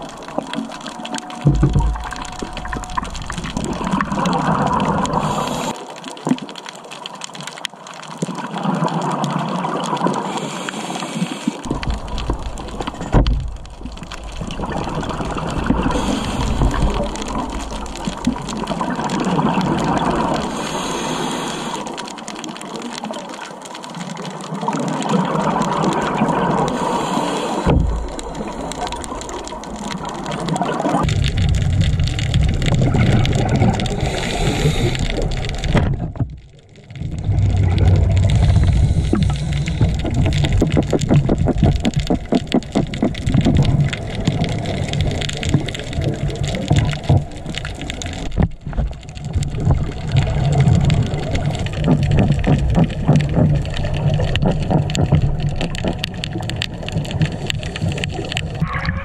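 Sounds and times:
exhaled bubbles gushing: 0.0s - 59.0s
diver breathing through regulator: 5.0s - 5.8s, 10.2s - 11.7s, 15.6s - 17.3s, 20.3s - 22.2s, 26.7s - 28.8s, 33.8s - 35.6s, 38.3s - 40.3s.

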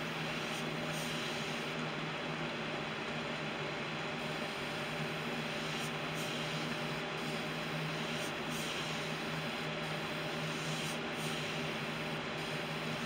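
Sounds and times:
steady low hum: 0.0s - 13.0s
airbrush hissing: 0.2s - 1.7s, 4.2s - 13.0s.

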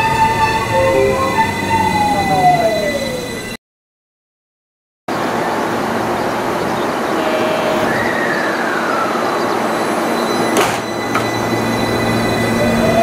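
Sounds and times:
electric train running: 0.0s - 3.6s, 5.2s - 13.0s
whine falling in pitch: 7.1s - 9.5s.

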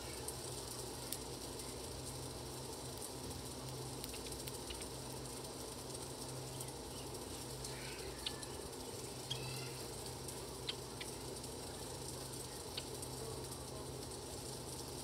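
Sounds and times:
steady low hum: 0.0s - 15.0s
birds chirping: 6.2s - 14.0s.

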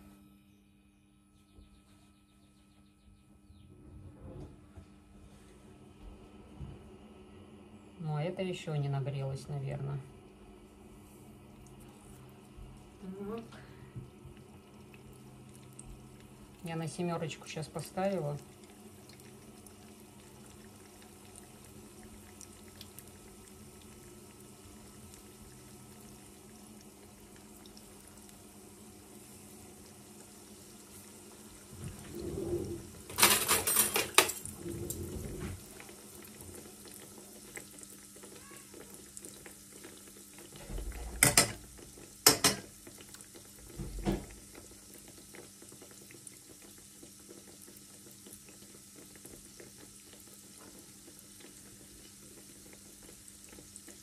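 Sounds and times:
oil sizzling in a frying pan: 10.3s - 32.1s, 35.6s - 54.0s
metal forks clinking on pan: 33.2s - 34.4s
dough dropping into oil clatter: 41.0s - 44.6s.

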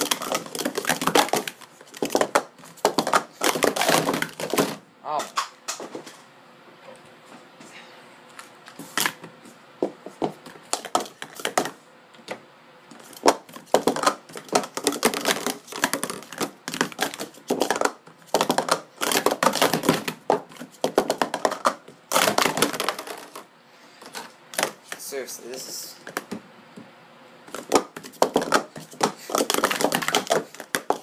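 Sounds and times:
plastic cups clacking: 0.0s - 5.6s, 10.4s - 11.8s, 13.0s - 25.0s, 27.5s - 31.0s.

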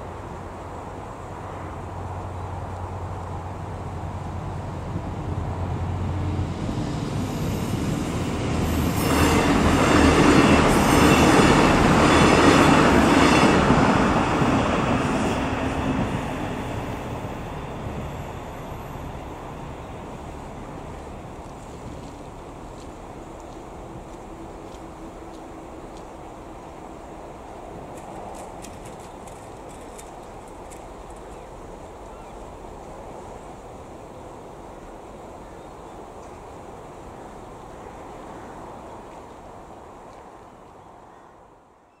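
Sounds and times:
train engines passing: 0.0s - 41.7s
train wheels on rails: 2.0s - 33.8s.

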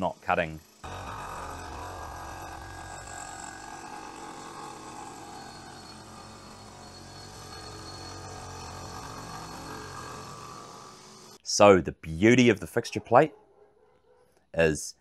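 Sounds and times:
milling machine cutting metal: 0.6s - 11.4s
low hum: 0.8s - 11.4s.

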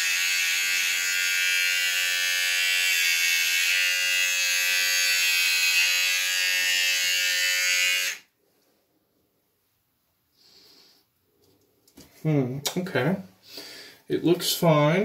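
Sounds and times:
electric shaver buzzing: 0.0s - 8.3s.

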